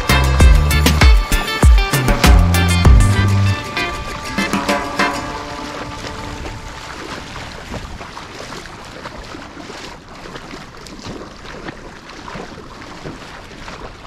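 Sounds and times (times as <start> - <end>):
wind on microphone: 3.1 - 8.6
feet splashing in water: 4.7 - 14.0.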